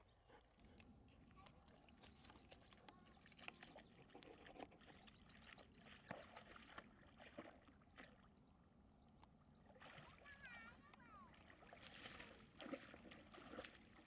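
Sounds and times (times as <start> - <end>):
dog splashing in water: 1.8 - 8.2, 11.4 - 14.0.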